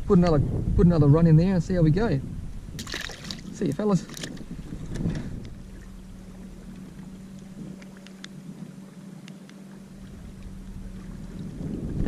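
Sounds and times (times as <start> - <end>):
light water noise: 1.8 - 12.0
electric motor humming: 4.4 - 12.0
faint ticks: 6.7 - 8.4, 9.2 - 10.8.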